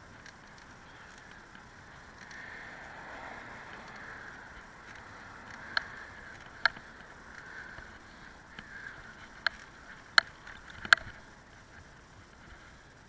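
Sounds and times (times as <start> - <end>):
tyre and wind hiss: 0.0 - 13.0
bike mount clicks and rattles: 3.8 - 11.3.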